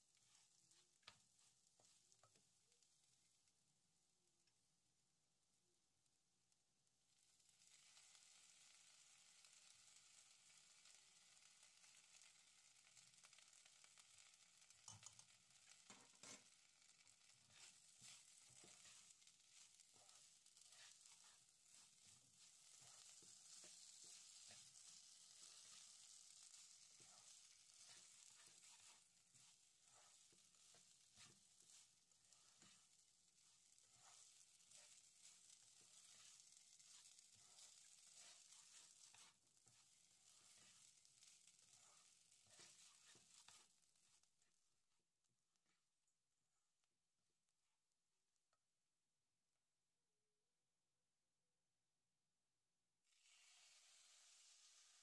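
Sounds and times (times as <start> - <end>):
rice sizzling in a pan: 0.0 - 45.7, 52.8 - 55.0
spatula scraping and tapping pan: 14.2 - 44.3.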